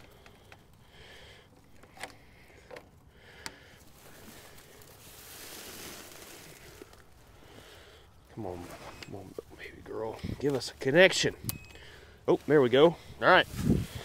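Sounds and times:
soft rustle: 3.6s - 14.0s.

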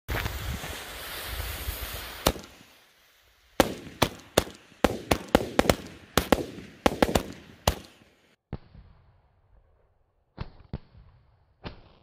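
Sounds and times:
firework bangs: 0.1s - 8.9s.

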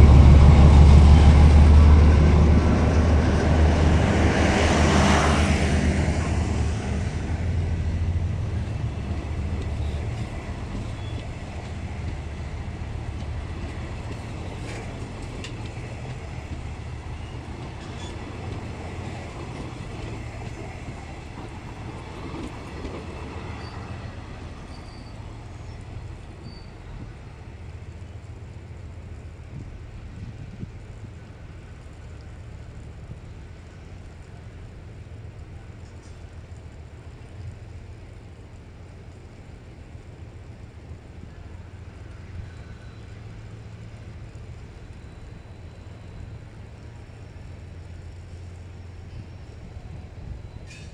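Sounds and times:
locomotive engine rumble: 0.0s - 50.9s
train coaches rolling on rails: 0.0s - 50.9s.

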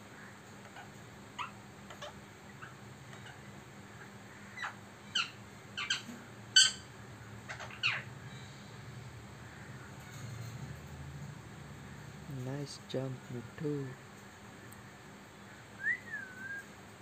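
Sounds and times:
parakeet chirps and squeaks: 0.7s - 3.5s, 4.6s - 8.1s.

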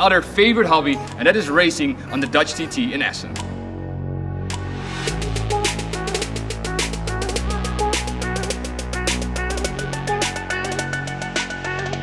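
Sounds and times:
electronic music with drum beat: 4.5s - 12.0s.

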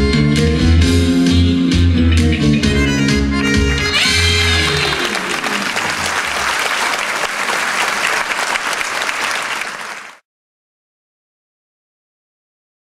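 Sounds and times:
music: 0.0s - 6.2s
audience applauding: 4.1s - 10.2s.

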